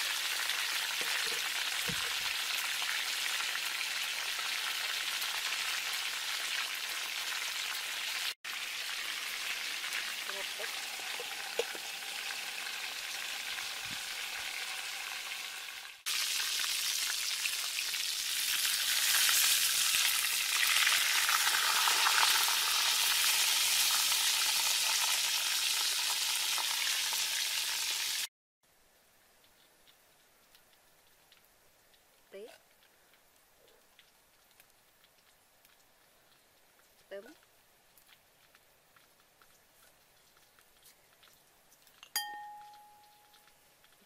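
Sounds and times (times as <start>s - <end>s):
chicken sizzling in hot oil: 0.0s - 28.3s.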